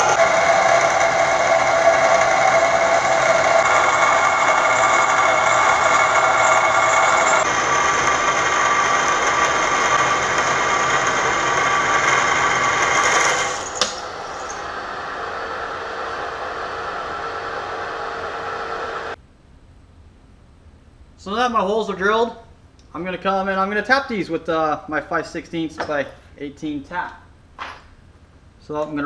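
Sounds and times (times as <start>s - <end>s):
milling machine drilling metal: 0.0s - 14.7s.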